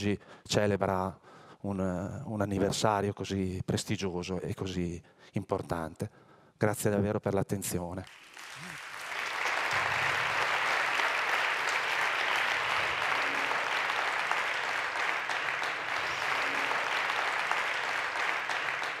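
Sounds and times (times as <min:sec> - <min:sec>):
audience applauding: 0:08.0 - 0:19.0.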